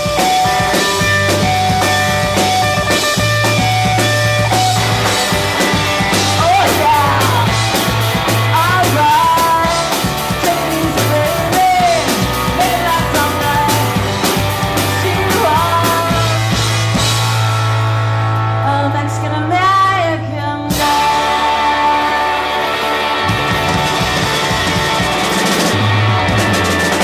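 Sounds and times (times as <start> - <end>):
bass line: 0.0 - 27.0
drums: 0.0 - 27.0
electric guitar: 0.0 - 27.0
woman singing: 8.5 - 13.9, 15.0 - 16.4, 18.6 - 22.4.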